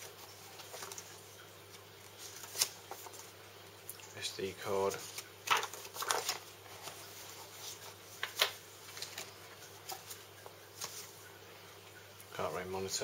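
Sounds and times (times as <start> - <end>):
sharp paper crackle: 0.0 - 1.2, 1.8 - 3.3, 4.9 - 10.2
paper leaflets rustling: 0.0 - 3.4, 4.7 - 11.2.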